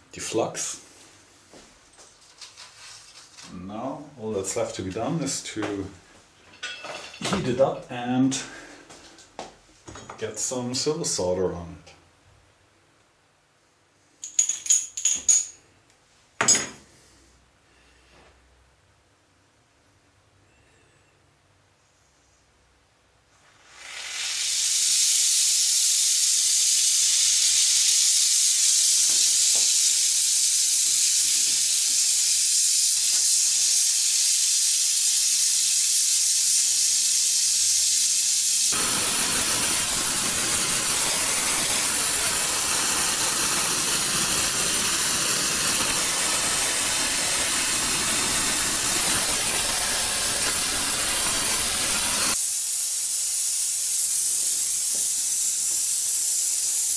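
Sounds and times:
torch flame hissing: 0:23.4 - 0:56.9.

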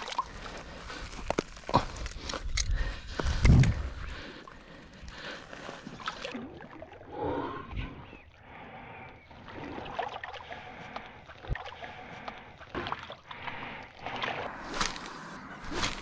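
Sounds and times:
river water splashing: 0:00.0 - 0:01.3, 0:05.4 - 0:07.2, 0:12.7 - 0:16.0
fish swishing in water: 0:00.0 - 0:01.8, 0:04.3 - 0:07.2, 0:08.5 - 0:16.0
hand swishing in water: 0:14.0 - 0:16.0.

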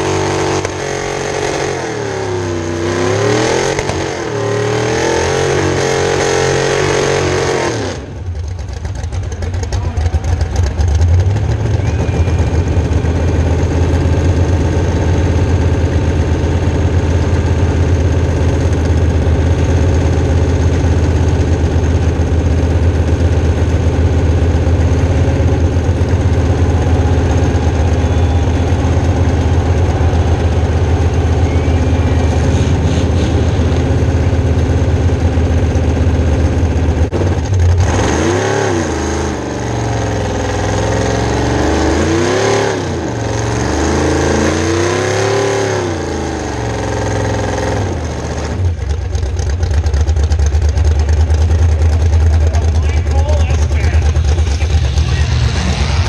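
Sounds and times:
engine revving high: 0:00.0 - 0:08.1, 0:37.8 - 0:47.9, 0:52.4 - 0:56.0.

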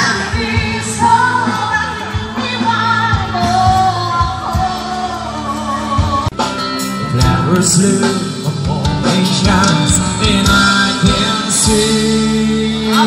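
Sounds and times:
bass: 0:00.0 - 0:13.0
guitars: 0:00.0 - 0:13.0
steady drum beat: 0:05.9 - 0:13.0.

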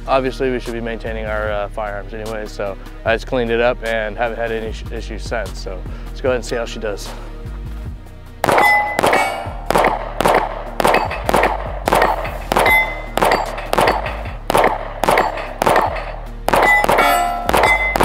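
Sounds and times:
background music: 0:00.0 - 0:18.0
pistol shots: 0:08.4 - 0:18.0
steel target clanging: 0:08.4 - 0:18.0.

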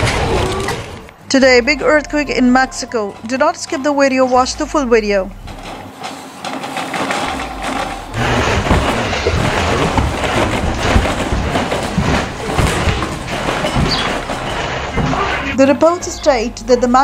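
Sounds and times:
earthquake rumble and rattle: 0:00.0 - 0:17.0
furniture thumping and clattering: 0:05.3 - 0:17.0.

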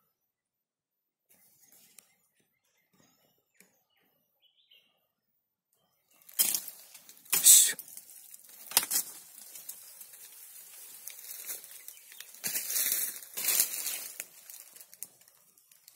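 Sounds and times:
leaves and twigs rustling: 0:06.1 - 0:15.9.

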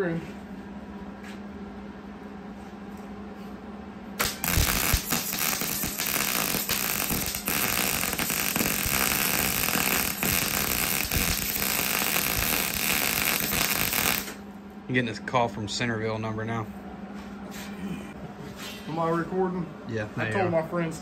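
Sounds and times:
arc welding crackling: 0:04.2 - 0:14.4
man talking: 0:14.9 - 0:16.7, 0:18.9 - 0:21.0.

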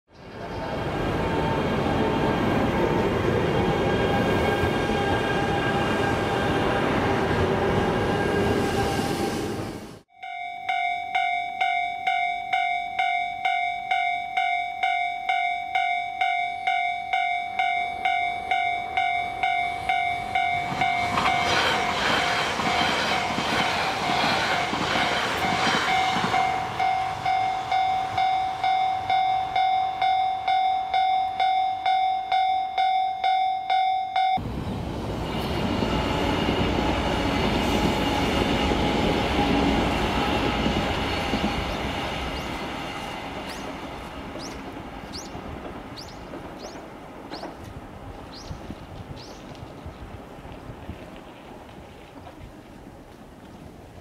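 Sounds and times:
level-crossing warning bell dinging: 0:10.1 - 0:34.5
rushing noise: 0:19.3 - 0:28.1.

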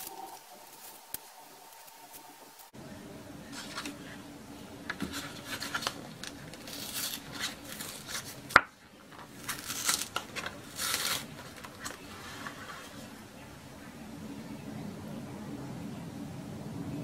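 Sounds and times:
card carton rustling and tearing: 0:04.8 - 0:13.1.

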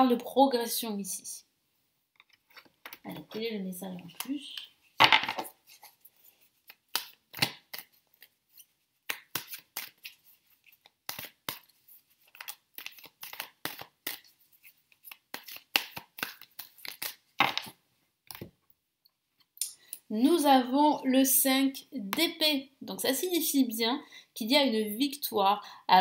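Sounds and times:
cards being shuffled: 0:02.2 - 0:18.6.

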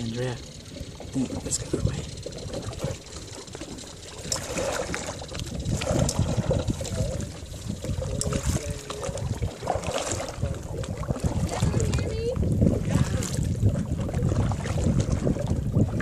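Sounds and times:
low rumble: 0:00.0 - 0:16.0
paddle splashing water: 0:00.0 - 0:16.0.

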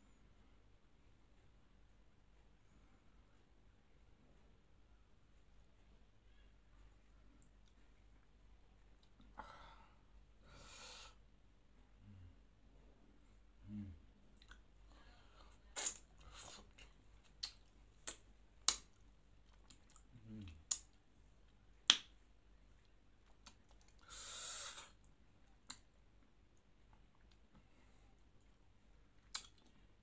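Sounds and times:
low mm hums: 0:00.0 - 0:30.0
breathy hiss: 0:09.4 - 0:11.2, 0:24.0 - 0:25.0
lip-smacking clicks while chewing: 0:14.4 - 0:14.7, 0:15.8 - 0:21.0, 0:22.8 - 0:24.0, 0:25.0 - 0:25.9, 0:29.2 - 0:29.8.

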